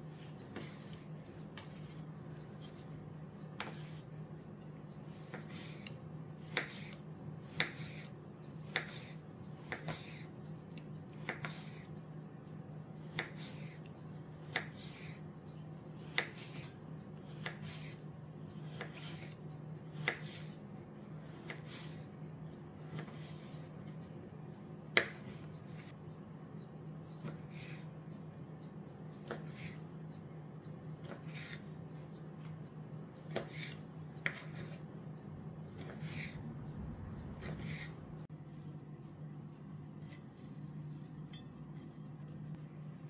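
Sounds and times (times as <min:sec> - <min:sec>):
steady low hum: 0:34.8 - 0:43.0.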